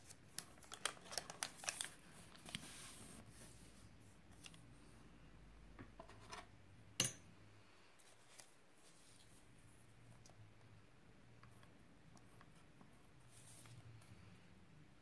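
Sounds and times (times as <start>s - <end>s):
paper rustling: 0.0s - 3.5s.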